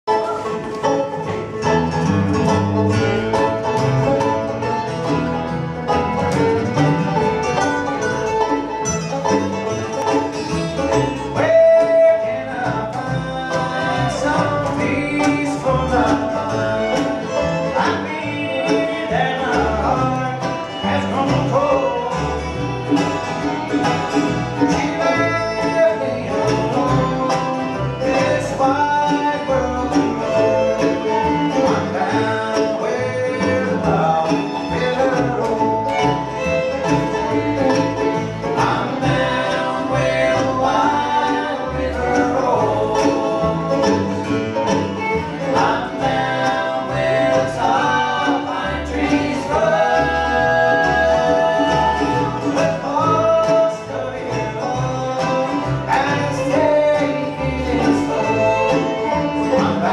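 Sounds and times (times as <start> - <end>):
acoustic guitar: 0.0 - 59.9
banjo picking: 0.0 - 59.9
fiddle: 0.0 - 59.9
upright bass: 0.0 - 59.9
person singing: 10.9 - 22.7, 24.6 - 59.9.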